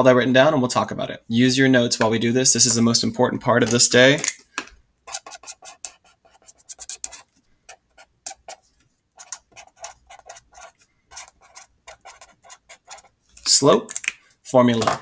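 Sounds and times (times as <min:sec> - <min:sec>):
marker scratching on paper: 0:05.1 - 0:13.2.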